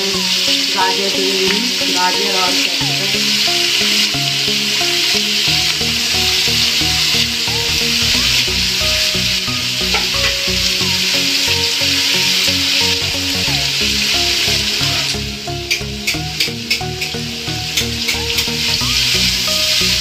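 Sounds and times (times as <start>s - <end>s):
background music: 0.0s - 20.0s
vegetables sizzling in hot oil: 0.0s - 20.0s.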